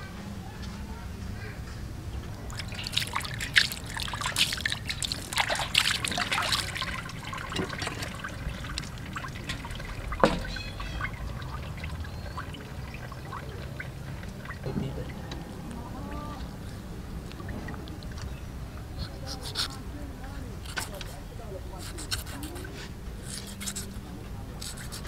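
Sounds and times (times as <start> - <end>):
water trickling and splashing: 2.0 - 25.0
sharp wet clicks: 2.2 - 15.8, 21.8 - 24.0, 24.6 - 25.0.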